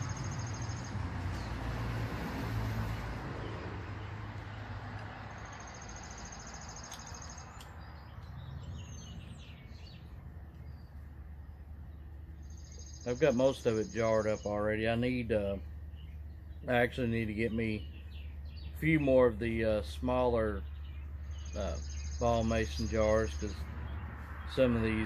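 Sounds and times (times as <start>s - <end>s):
birds chirping: 0.0s - 25.0s.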